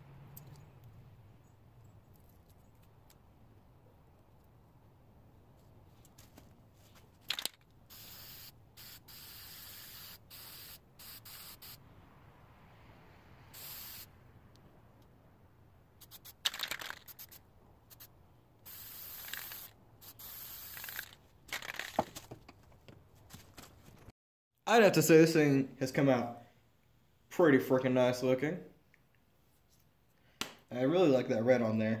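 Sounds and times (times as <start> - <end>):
spray-paint can hissing: 7.3 - 11.8, 13.5 - 14.1, 16.0 - 21.9.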